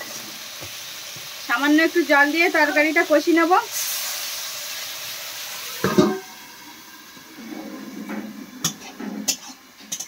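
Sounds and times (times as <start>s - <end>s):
water hissing in hot pan: 0.0s - 10.0s
metal spatula stirring pan: 7.4s - 10.0s.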